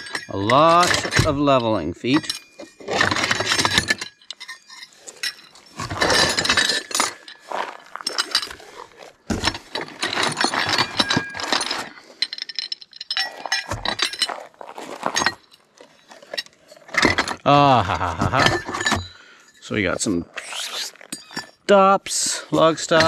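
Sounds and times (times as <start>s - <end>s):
metallic ringing: 0.0s - 8.6s
metal parts clinking: 0.0s - 23.0s.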